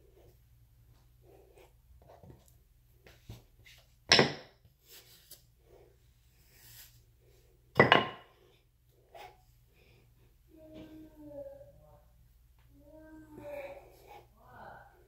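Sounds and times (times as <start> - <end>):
hard objects knocking: 7.8 - 8.2.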